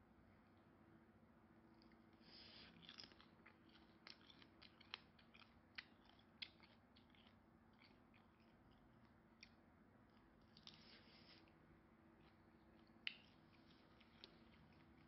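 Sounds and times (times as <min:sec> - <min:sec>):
low steady hum: 0:00.0 - 0:15.0
chewing and handling shrimp clicks: 0:01.8 - 0:10.9, 0:12.1 - 0:15.0.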